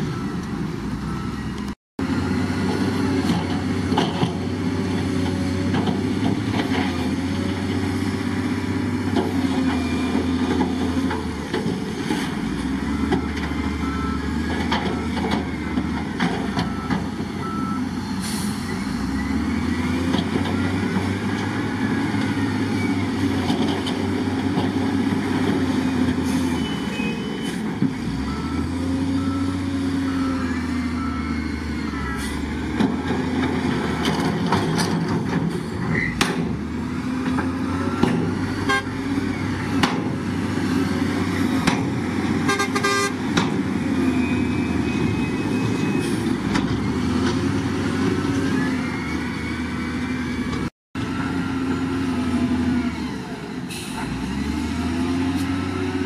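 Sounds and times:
diesel engines working: 0:00.0 - 0:56.0
reversing alarm beeps: 0:00.1 - 0:01.7, 0:12.9 - 0:15.3, 0:16.5 - 0:23.2, 0:26.5 - 0:27.6, 0:28.2 - 0:32.4, 0:44.1 - 0:46.2.

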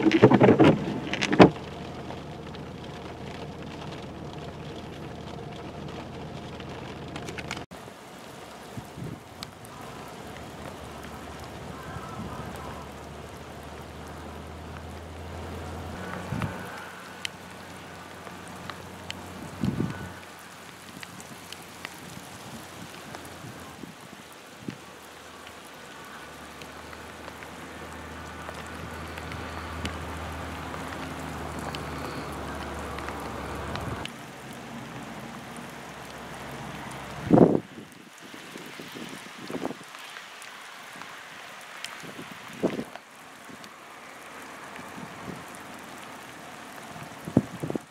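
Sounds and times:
ice pellets ticking: 0:00.0 - 0:07.7, 0:09.4 - 0:37.6
freezing rain pattering: 0:00.0 - 0:47.9.

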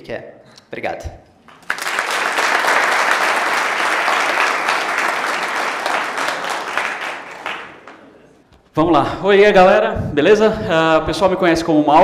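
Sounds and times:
audience applauding: 0:01.5 - 0:08.5.

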